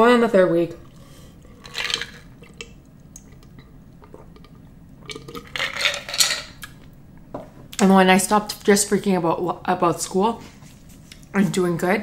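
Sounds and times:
person gulping a drink: 0:00.8 - 0:05.7.

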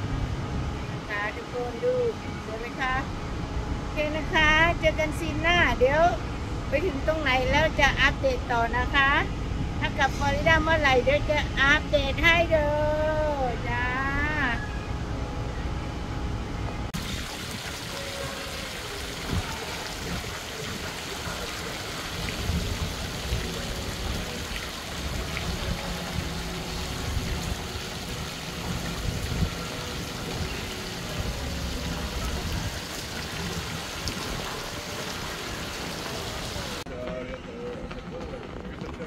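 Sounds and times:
fountain water spraying: 0:17.0 - 0:36.8.

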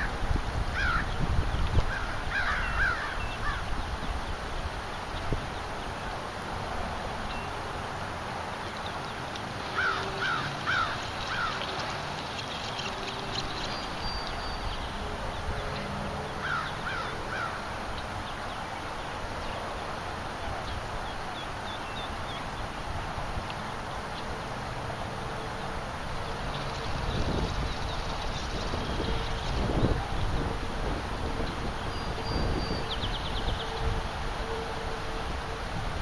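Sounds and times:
steady background hiss: 0:00.0 - 0:36.0
bird calling: 0:01.8 - 0:03.8, 0:08.7 - 0:18.9.

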